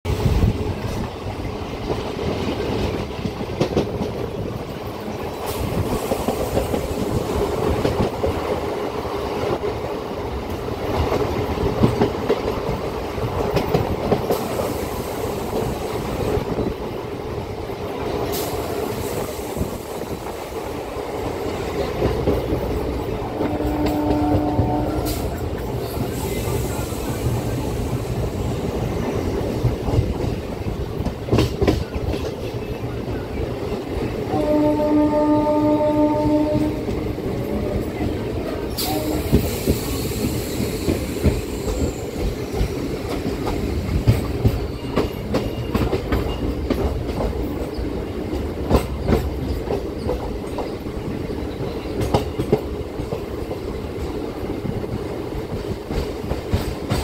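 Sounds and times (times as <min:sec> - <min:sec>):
train wheels rumbling on rails: 0:00.0 - 0:57.0
train horn: 0:23.3 - 0:25.4, 0:34.3 - 0:38.0, 0:38.7 - 0:39.6.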